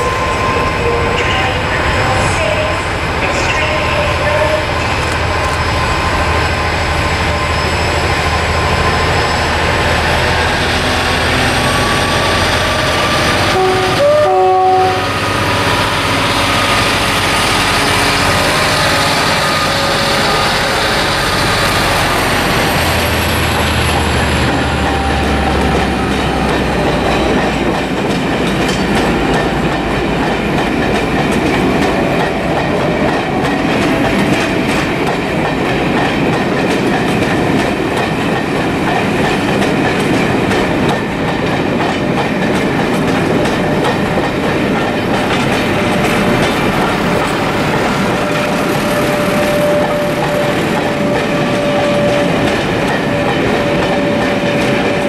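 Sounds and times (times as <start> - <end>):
diesel locomotive engine working hard: 0.0 - 55.0
two-tone horn blast: 12.8 - 15.4
coaches clattering over rail joints: 16.8 - 55.0.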